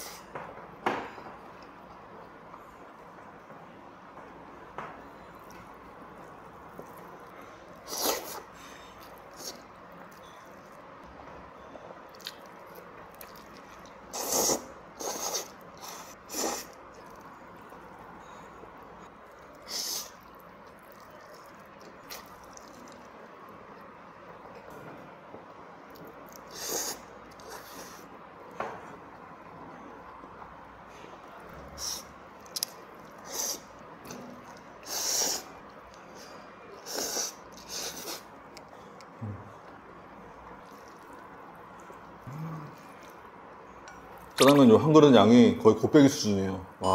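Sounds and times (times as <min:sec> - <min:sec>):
loud noodle slurps: 0:07.8 - 0:08.5, 0:14.1 - 0:16.8, 0:26.5 - 0:28.0, 0:34.8 - 0:35.5, 0:36.8 - 0:38.3
chewing clicks: 0:12.1 - 0:14.0.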